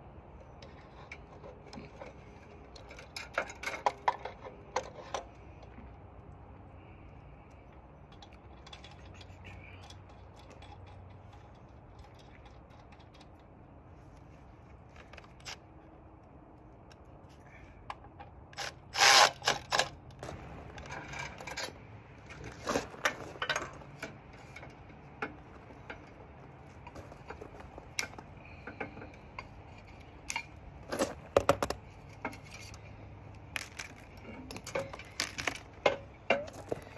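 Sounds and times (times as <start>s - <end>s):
metal clanks and clicks: 0.6s - 5.3s, 8.1s - 13.5s, 17.9s - 32.8s, 33.5s - 36.9s.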